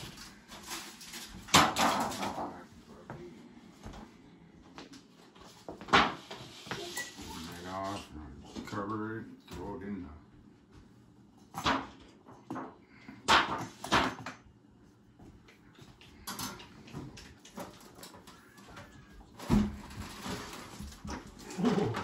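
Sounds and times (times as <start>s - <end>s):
objects knocking and clunking: 0.0s - 2.7s, 11.4s - 14.5s.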